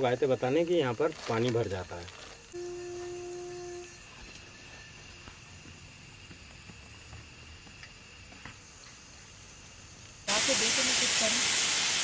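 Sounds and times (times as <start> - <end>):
steady hum: 2.5 - 7.6
faint high tone: 2.6 - 4.3
low hiss: 8.8 - 12.0.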